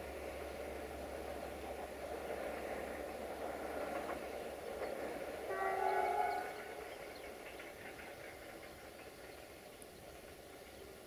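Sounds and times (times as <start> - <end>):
train rolling: 0.0 - 11.0
distant locomotive horn blast: 5.5 - 6.8.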